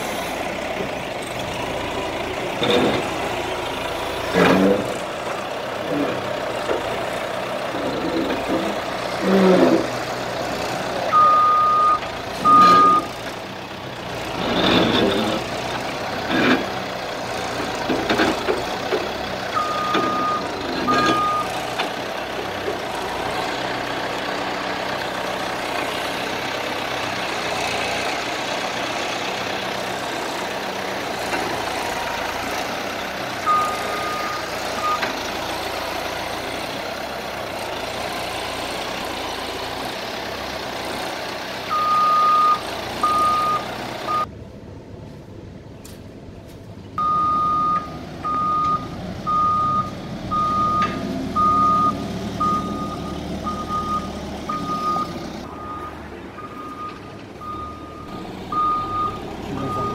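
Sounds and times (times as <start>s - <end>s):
diesel engine running: 0.0s - 59.9s
reversing alarm beeps: 11.1s - 13.1s, 19.6s - 21.5s, 33.5s - 35.1s, 41.7s - 44.3s, 47.0s - 59.9s.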